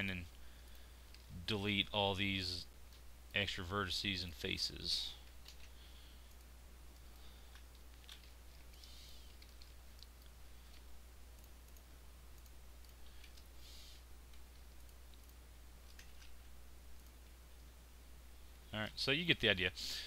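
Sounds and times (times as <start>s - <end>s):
steady low hum: 0.0s - 20.0s
computer mouse clicks: 5.2s - 13.5s, 14.3s - 17.7s.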